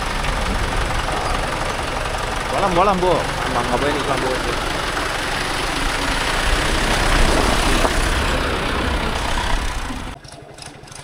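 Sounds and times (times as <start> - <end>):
loud rushing noise: 0.0 - 10.2
tractor diesel engine running: 0.0 - 11.0.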